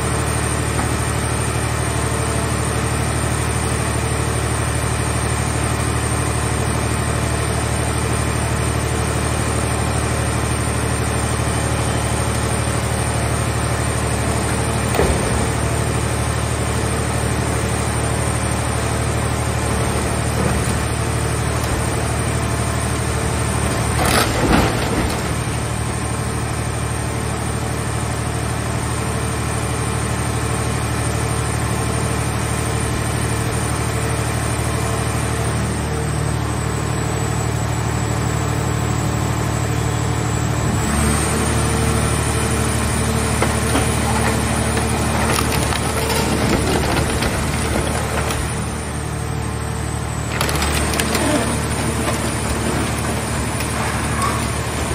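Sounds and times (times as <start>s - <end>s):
hydraulic baler humming: 0.0s - 31.0s, 31.6s - 54.9s
metal crunch: 43.2s - 49.0s, 50.3s - 54.9s.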